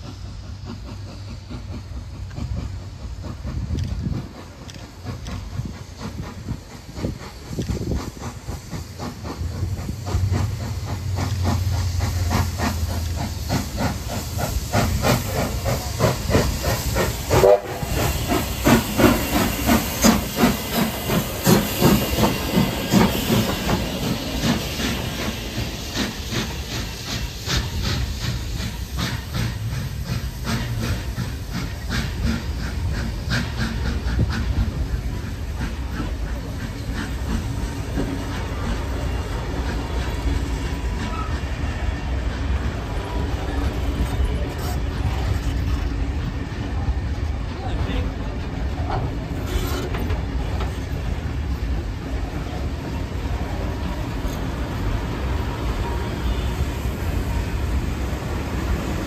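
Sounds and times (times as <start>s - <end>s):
steam hissing: 0.0s - 59.0s
steam locomotive exhaust beating: 0.0s - 59.0s.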